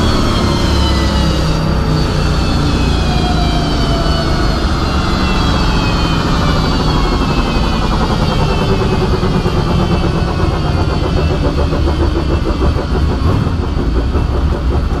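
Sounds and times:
car engine at low revs: 4.2 - 15.0.

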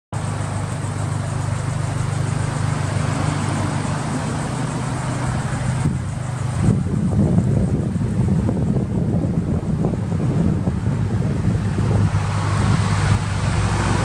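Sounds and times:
car engine idling: 0.1 - 14.0.

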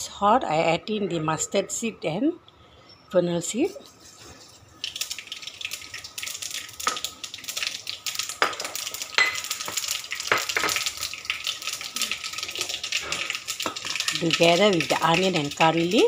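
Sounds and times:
seeds sizzling in hot oil: 3.5 - 16.0.

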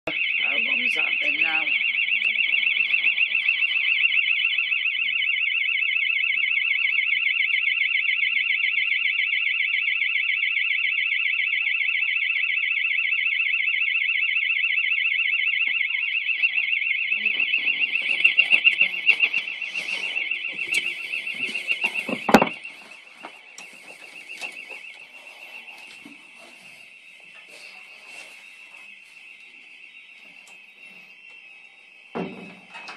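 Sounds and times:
burglar alarm pulsing tone: 0.1 - 32.9
knocks and rustles: 18.0 - 25.0.

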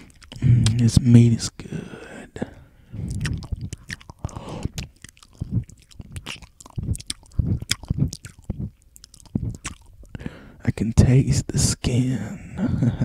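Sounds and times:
person chewing meat: 0.0 - 0.8, 2.9 - 10.2
mouth clicks and smacks: 0.0 - 1.1, 2.9 - 10.3.

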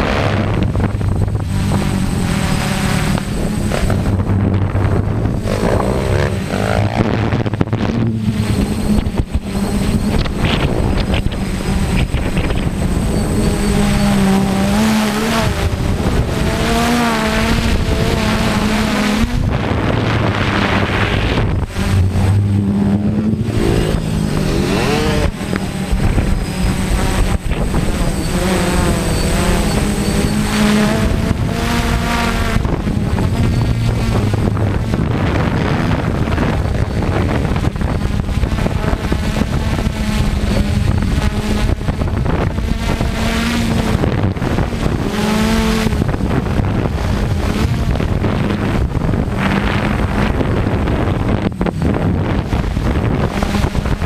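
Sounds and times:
drone propellers whirring: 0.0 - 54.0
wind buffeting microphone: 0.0 - 54.0.

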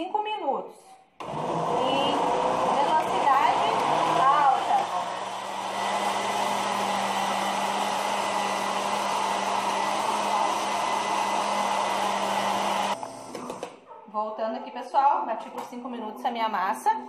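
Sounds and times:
blender motor whirring: 1.2 - 13.7.

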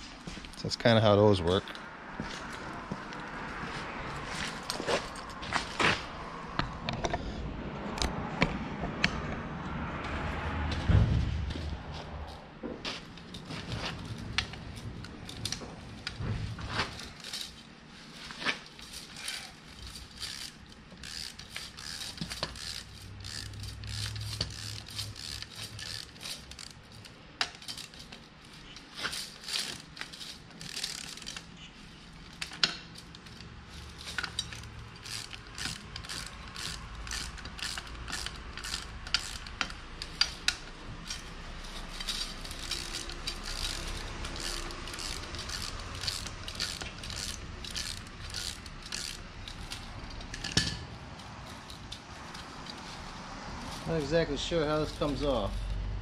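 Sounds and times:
ratchet wrench clicking: 16.8 - 17.6, 18.3 - 55.8.

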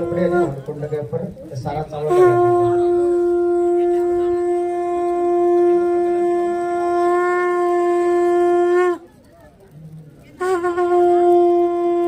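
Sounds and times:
conch shell blown: 0.0 - 0.6, 2.0 - 9.1, 10.4 - 12.0.

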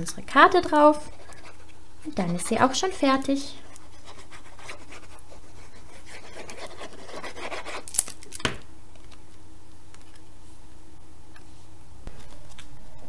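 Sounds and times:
glue bottle tip scratching card: 5.8 - 7.9.

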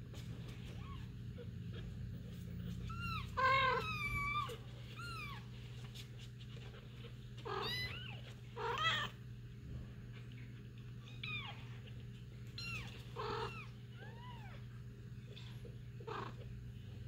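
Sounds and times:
cat meowing: 2.8 - 5.4, 7.4 - 9.2, 12.6 - 14.6.

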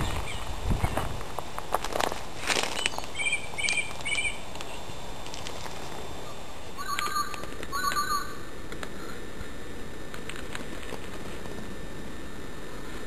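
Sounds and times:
bird chirps: 2.8 - 4.8, 6.8 - 8.4
longer lower bird calls: 2.8 - 5.0, 6.2 - 9.2.

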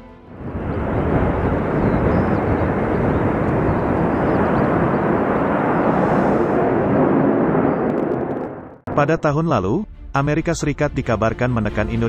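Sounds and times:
jet engine roar: 0.3 - 8.8.

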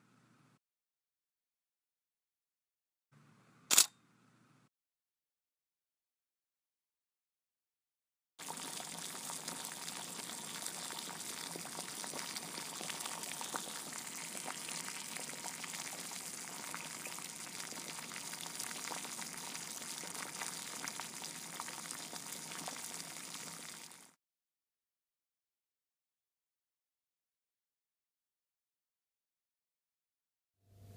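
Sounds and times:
food sizzling: 8.4 - 24.2.

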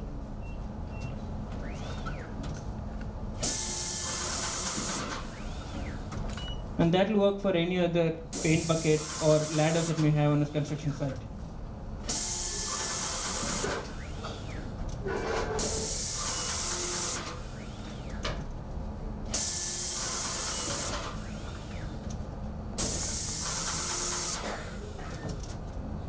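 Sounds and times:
paint sprayer hissing: 8.4 - 10.0, 12.1 - 14.4, 15.6 - 18.1, 19.3 - 21.8, 22.8 - 25.1.

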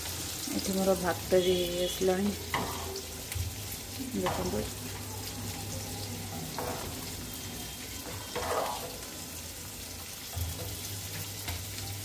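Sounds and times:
rice bubbling in a pot: 0.0 - 12.0
spoon scraping a metal pot: 8.0 - 9.0.

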